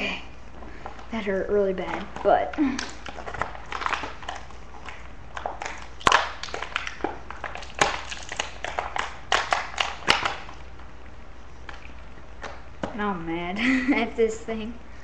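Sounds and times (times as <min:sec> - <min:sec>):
plastic packaging clicks and crackles: 0:01.9 - 0:10.6
sharp plastic snaps: 0:02.2 - 0:10.6.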